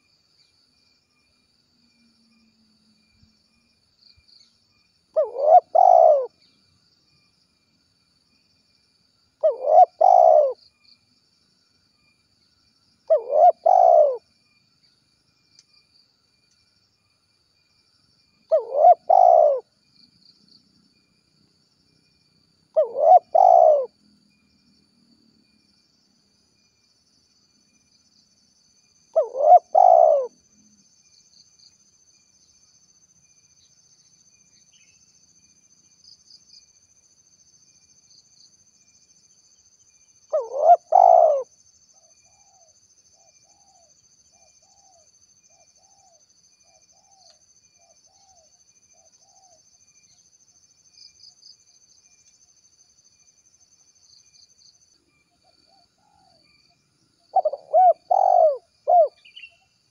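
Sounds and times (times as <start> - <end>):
dove cooing: 5.2 - 6.3, 9.4 - 10.6, 13.1 - 14.2, 18.5 - 19.6, 22.8 - 23.9, 29.2 - 30.3, 40.3 - 41.5, 57.3 - 59.4.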